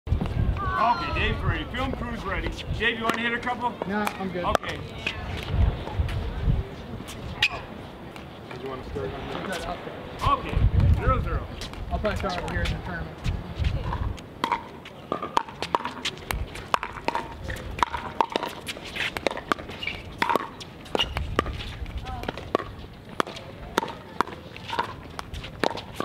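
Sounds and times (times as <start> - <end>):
ball bouncing on hard court: 15.2 - 26.0.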